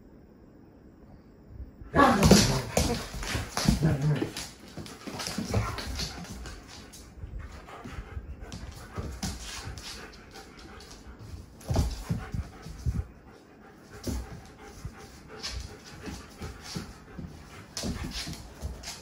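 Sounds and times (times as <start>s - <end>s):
bumps on floor: 2.0s - 6.9s
dogs scuffling on hard floor: 2.0s - 19.0s
dogs panting: 2.7s - 19.0s.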